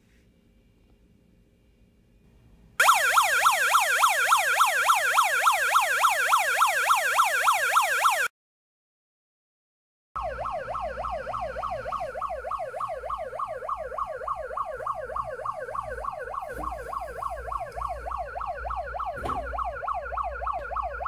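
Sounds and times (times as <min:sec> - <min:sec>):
police siren yelp from small speaker: 0:02.8 - 0:08.3, 0:10.2 - 0:21.0.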